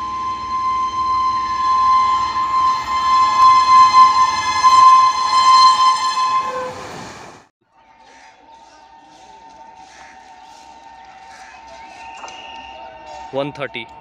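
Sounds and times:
train horn blast: 0:00.0 - 0:07.4.

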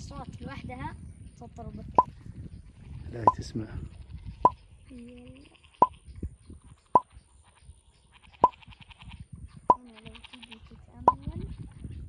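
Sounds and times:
frogs plopping calls: 0:08.4 - 0:08.7, 0:11.0 - 0:11.3.

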